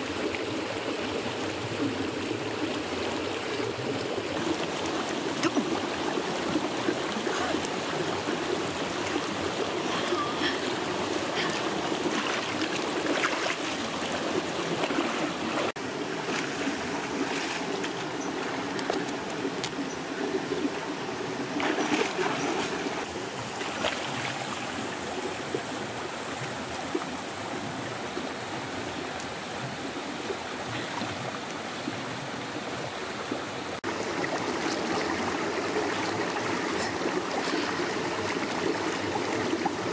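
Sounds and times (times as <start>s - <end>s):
stream rushing: 0.0s - 39.9s
water splashing from wading: 1.5s - 27.2s, 33.8s - 39.9s.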